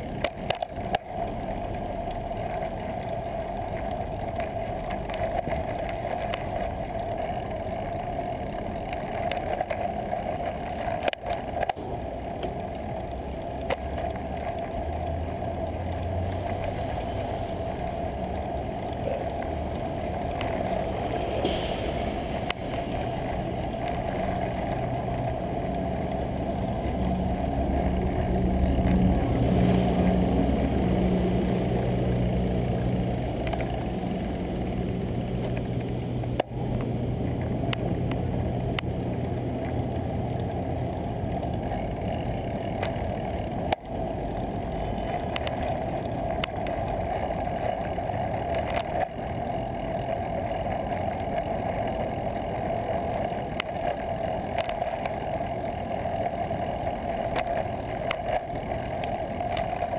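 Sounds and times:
traffic hum and rush: 0.0s - 59.9s
nearby vehicle engine humming: 11.8s - 41.6s.

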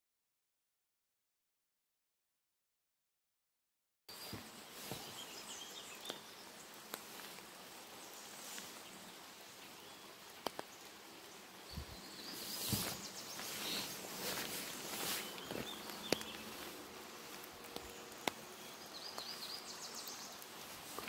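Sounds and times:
rain falling: 4.1s - 21.0s
raindrop ticks: 5.9s - 11.1s, 12.8s - 21.0s.

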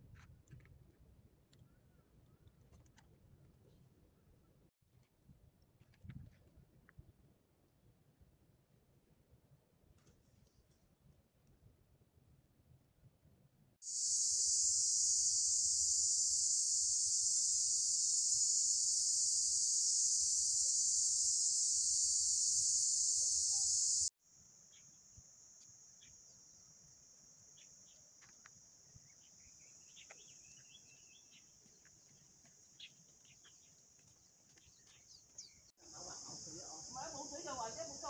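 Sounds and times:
insect chorus drone: 13.8s - 33.7s, 35.8s - 38.0s
faint bird chirps: 13.9s - 24.1s.

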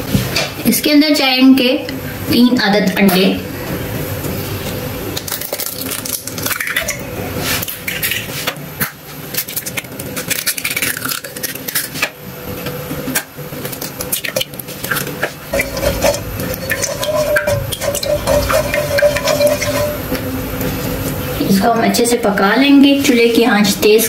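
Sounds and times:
metal utensil scraping a pan: 15.5s - 20.2s.

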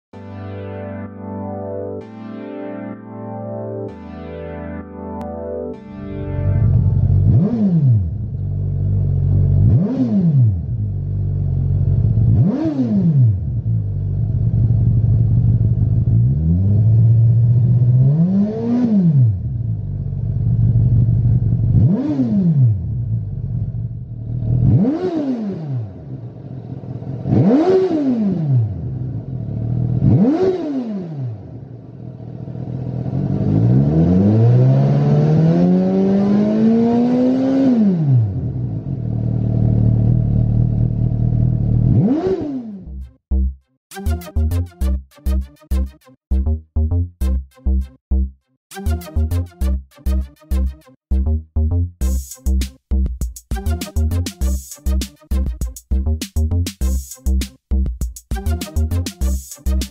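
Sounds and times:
motorcycle engine idling and revving: 6.6s - 43.6s.

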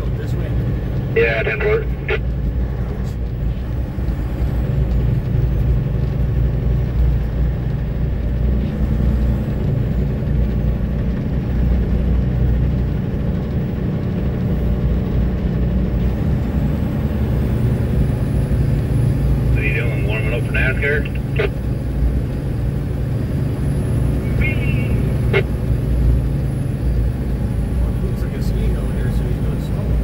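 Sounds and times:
truck engine running: 0.0s - 30.0s.

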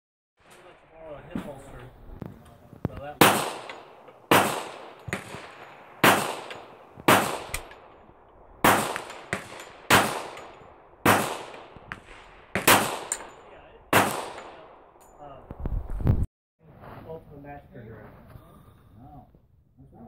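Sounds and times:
handgun shots: 3.2s - 7.7s, 12.6s - 13.3s.

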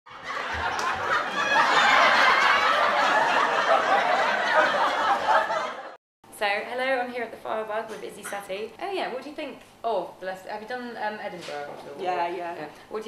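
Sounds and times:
audience laughing: 0.1s - 6.0s.

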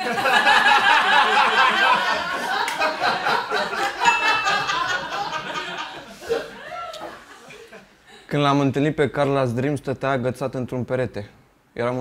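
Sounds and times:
men laughing: 0.0s - 8.3s.

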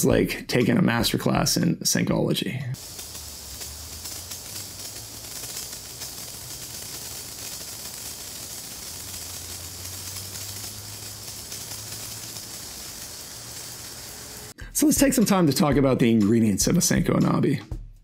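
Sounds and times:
sparkler fizzing hiss: 2.8s - 15.0s.

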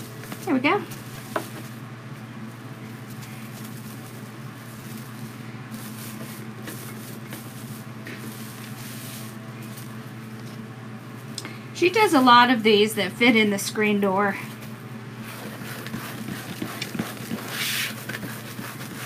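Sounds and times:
foil mesh rustling: 0.0s - 11.3s
steady low hum: 0.0s - 19.0s.

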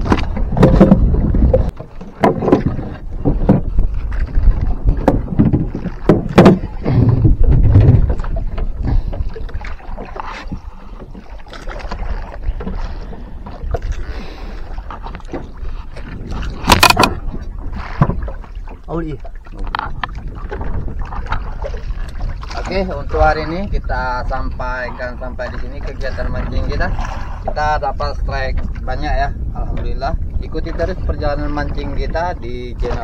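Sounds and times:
wind and sea: 0.0s - 33.0s
knocks on wooden boat deck: 5.0s - 8.2s.

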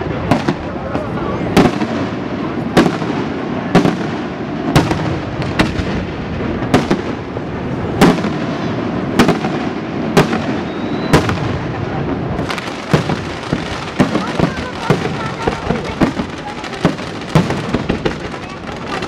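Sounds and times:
continuous firework display noise: 0.0s - 19.0s
firework shells bursting: 12.4s - 19.0s.

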